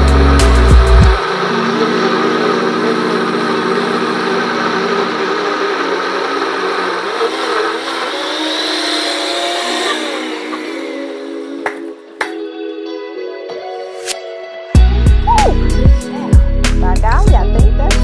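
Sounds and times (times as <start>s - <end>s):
blender motor running: 0.0s - 12.2s.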